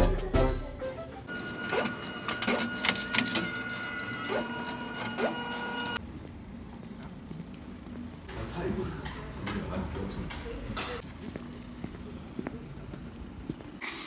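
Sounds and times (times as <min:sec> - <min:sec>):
printer whine: 0:01.3 - 0:06.0.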